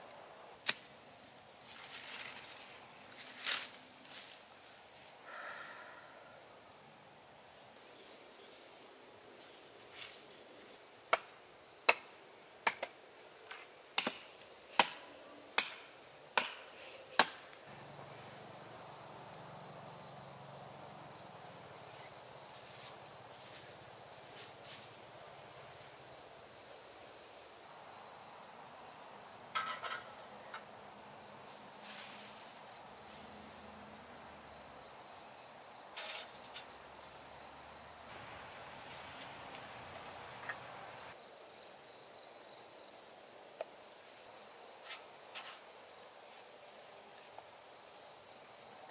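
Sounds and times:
hatchet chopping: 0:11.9 - 0:15.0, 0:15.6 - 0:17.5
high insect trill: 0:14.2 - 0:48.9.

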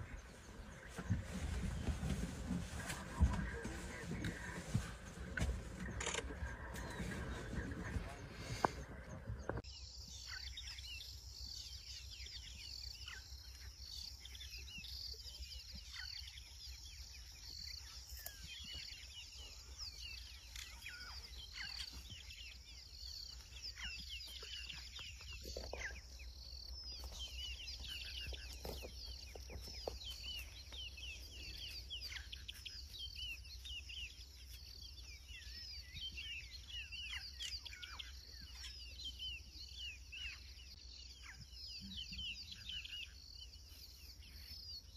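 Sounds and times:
steady low hum: 0:00.0 - 0:09.6
birds chirping: 0:00.0 - 0:44.9.

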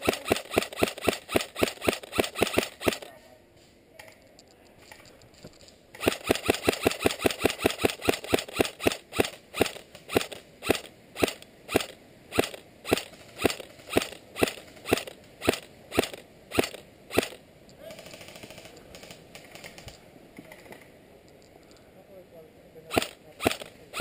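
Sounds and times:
airsoft rifle shots: 0:00.0 - 0:03.1, 0:06.0 - 0:19.9, 0:22.9 - 0:24.0.

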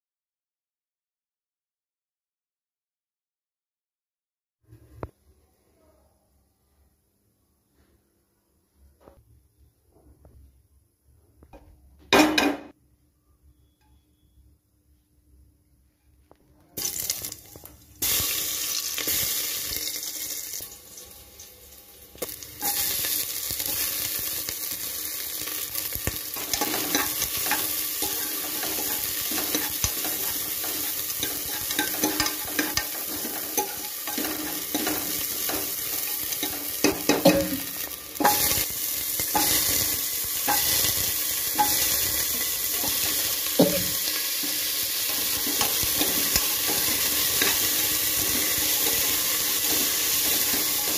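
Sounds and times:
vegetables sizzling in hot oil: 0:16.8 - 0:50.9
spatula scraping a pan: 0:26.3 - 0:37.6, 0:39.3 - 0:50.9.

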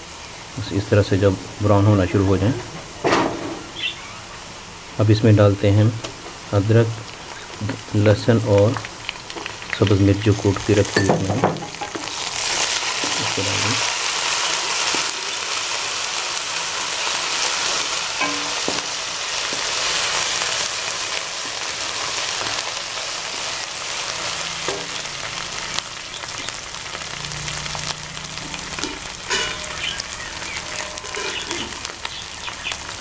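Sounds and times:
onions sizzling in hot oil: 0:00.0 - 0:33.0
wooden spatula scraping a pan: 0:28.4 - 0:31.9.

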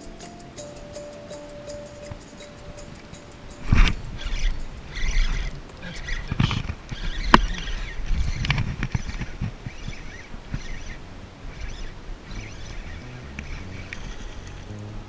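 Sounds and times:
spinning reel cranking: 0:00.0 - 0:09.0.

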